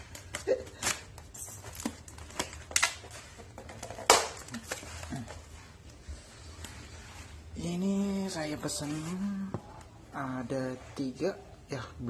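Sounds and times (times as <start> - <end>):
tape and cardboard tearing: 0.0 - 5.3.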